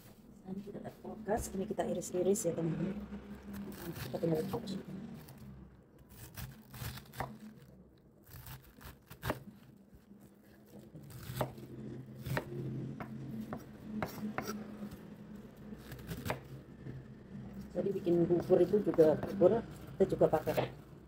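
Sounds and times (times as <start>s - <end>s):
knife slicing cabbage: 3.5s - 5.4s, 6.1s - 15.0s, 15.7s - 16.6s, 18.0s - 20.8s.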